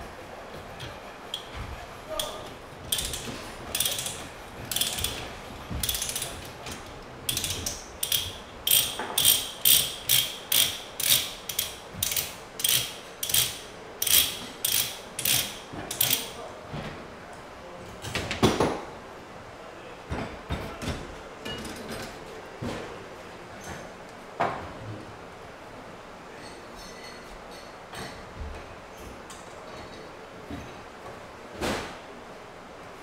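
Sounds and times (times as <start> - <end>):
ratchet pipe threader clicking: 2.2 - 5.2, 5.8 - 16.4.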